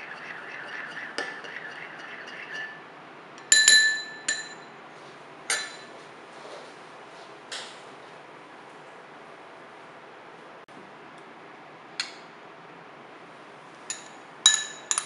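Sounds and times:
spoon scraping porcelain bowl: 0:00.0 - 0:02.9
spoon clinking bowl rim: 0:03.4 - 0:04.7, 0:13.9 - 0:15.0.

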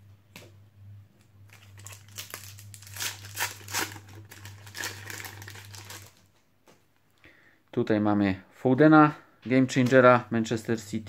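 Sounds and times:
foil packet tearing and crinkling: 0:01.5 - 0:06.2.

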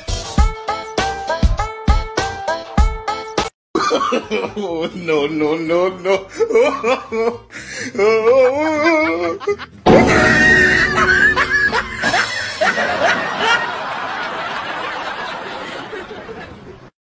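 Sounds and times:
people laughing: 0:03.8 - 0:07.4, 0:08.0 - 0:09.8, 0:10.7 - 0:16.9.

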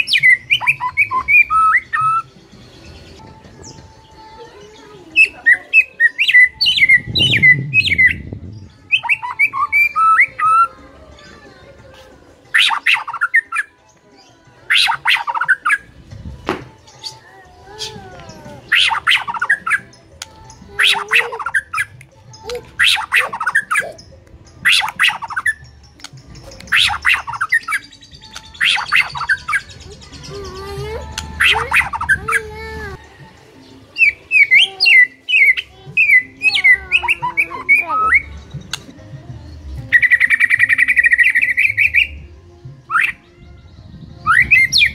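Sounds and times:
bird singing whistled notes: 0:00.0 - 0:10.8, 0:18.6 - 0:32.3, 0:33.1 - 0:38.9, 0:39.8 - 0:44.9.

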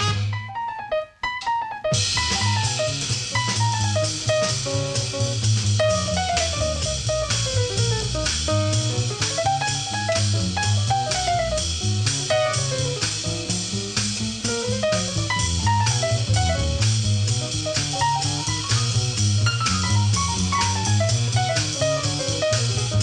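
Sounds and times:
drum kit steady beat: 0:00.0 - 0:00.4, 0:01.9 - 0:23.0
jazz band playing: 0:00.0 - 0:23.0.

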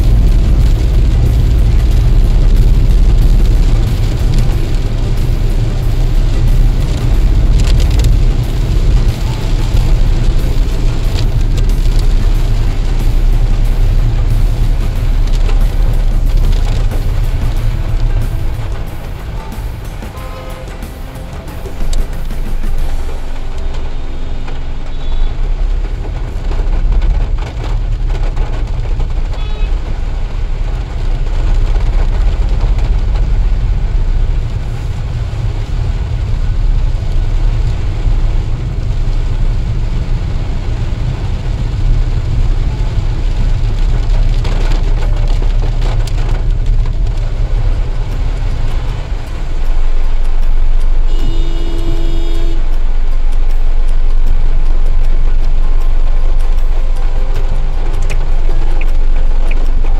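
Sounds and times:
car engine and tyres rumble: 0:00.0 - 0:59.9
hiss of water from tyres: 0:00.0 - 0:59.9
car horn honking: 0:18.8 - 0:25.4, 0:51.0 - 0:52.8.

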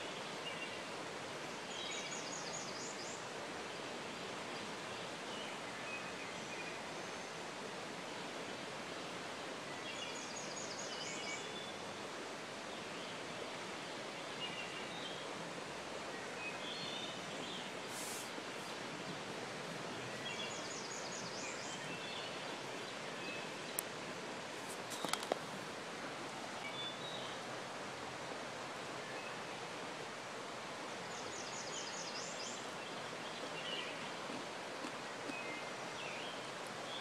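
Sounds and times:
creek flowing over rocks: 0:00.0 - 0:37.0
songbirds calling: 0:16.0 - 0:19.2, 0:19.8 - 0:24.0, 0:24.7 - 0:27.5, 0:31.0 - 0:37.0.

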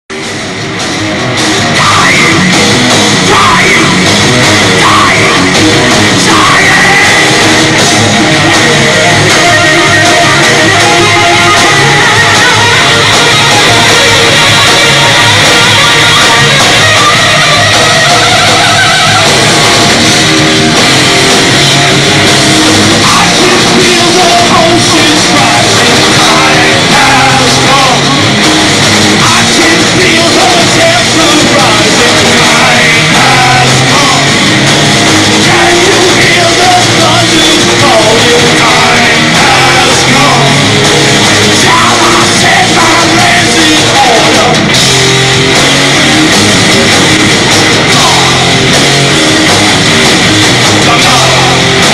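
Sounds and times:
drums: 0:00.0 - 0:51.9
electric guitars: 0:00.1 - 0:51.9
person singing: 0:01.7 - 0:17.2, 0:23.0 - 0:28.4, 0:29.2 - 0:34.7, 0:35.3 - 0:44.7, 0:47.7 - 0:48.7, 0:50.7 - 0:51.9.

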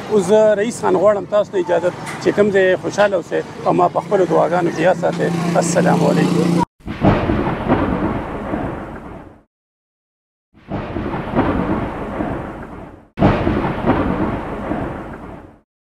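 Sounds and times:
thunder rumbling: 0:06.8 - 0:09.4, 0:10.6 - 0:15.6
rain: 0:10.7 - 0:15.6.

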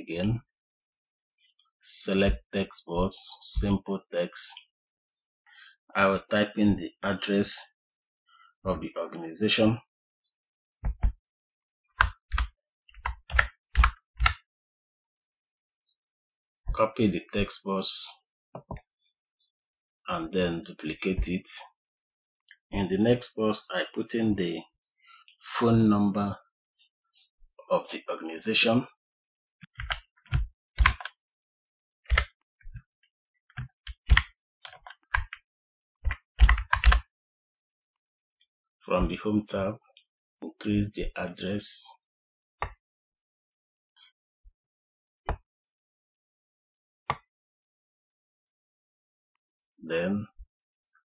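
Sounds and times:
computer key clicks: 0:36.1 - 0:37.0
typing on a keyboard: 0:36.1 - 0:37.0.

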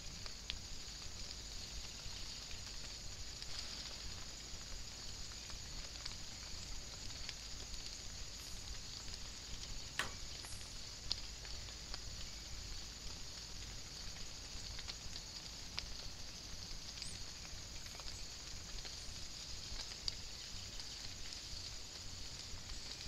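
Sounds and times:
light rain on leaves: 0:00.0 - 0:23.0
sharp click: 0:10.0 - 0:10.6.

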